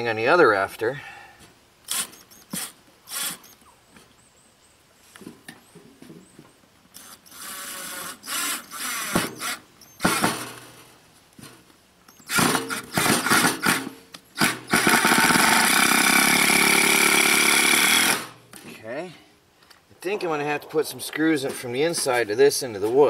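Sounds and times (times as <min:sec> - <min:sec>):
cordless drill driving screws: 0:01.9 - 0:03.6, 0:07.0 - 0:10.6, 0:12.1 - 0:13.8, 0:14.4 - 0:18.3.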